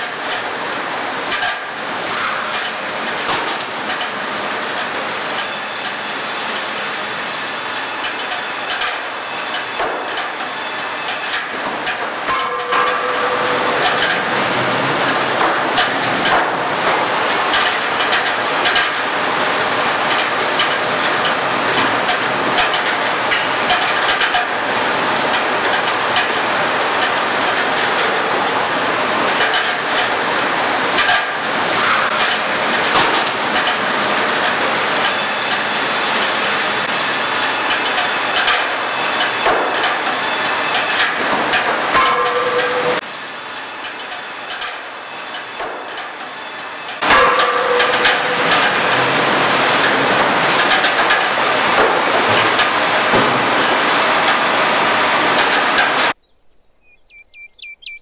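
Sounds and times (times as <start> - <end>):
high machine whine: 5.4 - 11.5, 12.2 - 15.8, 34.9 - 41.1
knocks of timber and metal: 8.2 - 14.4, 15.4 - 19.0, 31.0 - 33.8, 37.1 - 43.1, 43.9 - 54.5
conveyors clattering: 11.1 - 43.1, 43.8 - 56.2.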